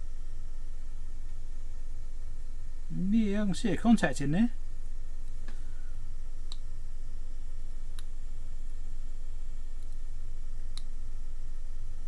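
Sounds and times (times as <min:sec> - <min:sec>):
steady low hum: 0:00.0 - 0:12.0
small sharp clicks: 0:06.5 - 0:06.7, 0:09.8 - 0:10.0, 0:10.7 - 0:11.0.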